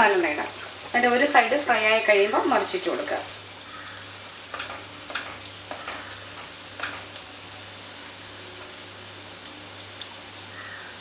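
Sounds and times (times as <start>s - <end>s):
snacks sizzling in hot oil: 0.0s - 11.0s.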